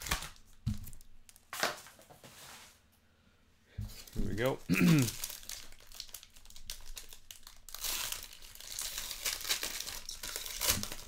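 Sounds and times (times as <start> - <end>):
foil wrapper tearing and crinkling: 0.0 - 1.7, 3.9 - 11.0.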